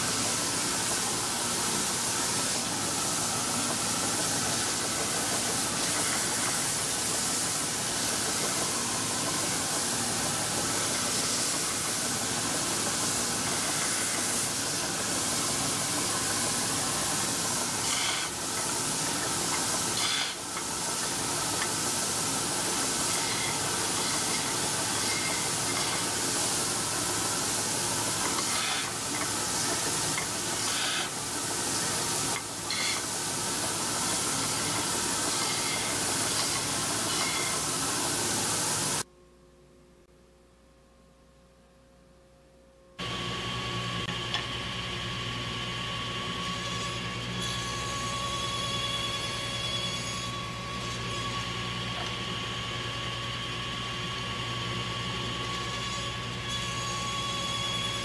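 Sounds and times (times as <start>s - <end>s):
belt sander hissing: 0.0s - 39.0s.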